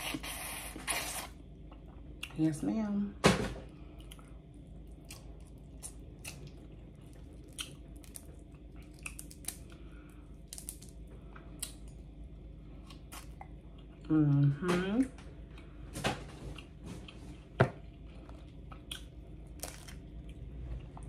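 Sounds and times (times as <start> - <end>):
chewing: 4.0 - 9.8
crawfish shells cracking: 7.4 - 9.8, 10.4 - 11.0.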